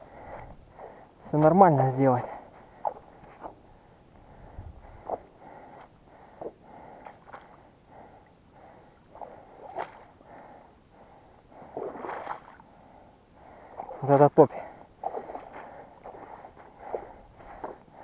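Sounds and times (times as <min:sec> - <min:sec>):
heavy breathing: 0:00.0 - 0:01.4, 0:02.2 - 0:11.8, 0:12.7 - 0:18.0
squelching steps in wet ground: 0:01.3 - 0:03.6, 0:05.0 - 0:07.6, 0:09.2 - 0:10.1, 0:11.7 - 0:12.6, 0:13.7 - 0:14.2, 0:15.0 - 0:18.0.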